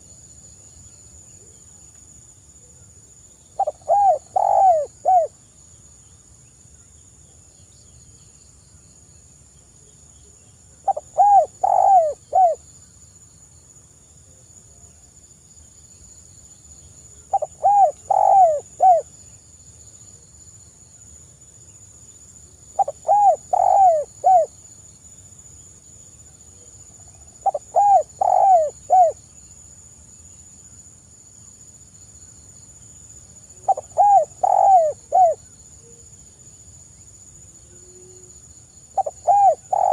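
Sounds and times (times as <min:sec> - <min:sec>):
dove cooing: 0:03.6 - 0:05.3, 0:10.8 - 0:12.6, 0:17.3 - 0:19.1, 0:22.8 - 0:24.5, 0:27.4 - 0:29.2, 0:33.6 - 0:35.4, 0:39.0 - 0:39.9.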